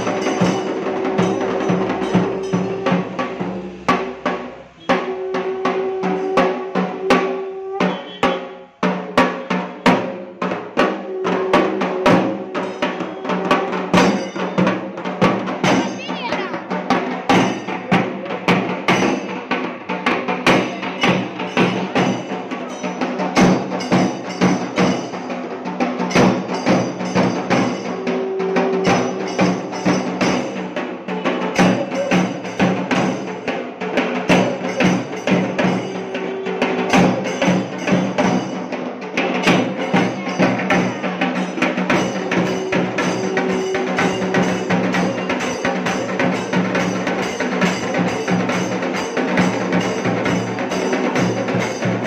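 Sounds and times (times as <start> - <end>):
higher held tone: 0.0 - 4.0, 4.8 - 8.2, 10.8 - 14.9, 39.6 - 51.8
stick drums playing fast rhythm: 0.0 - 52.0.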